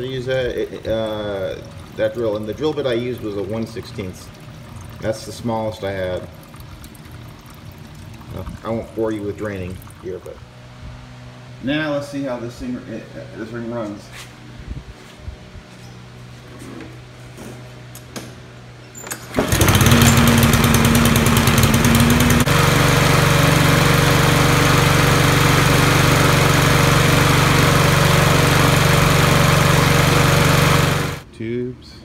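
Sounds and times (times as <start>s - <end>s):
lawn mower engine running: 19.0s - 31.3s.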